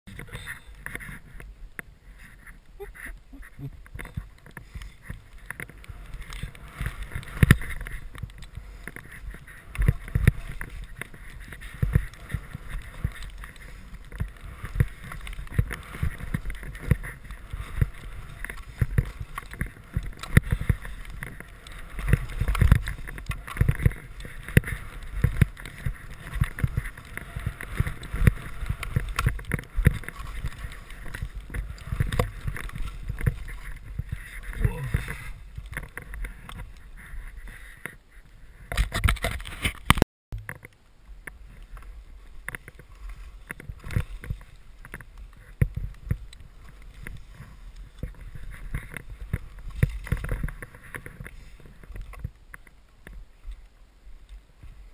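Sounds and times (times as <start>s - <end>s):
wind rush on microphone: 0.1s - 40.0s.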